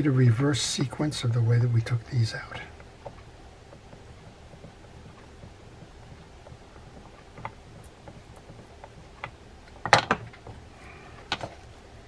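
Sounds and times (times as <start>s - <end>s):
clatter of knocks: 6.0s - 10.6s.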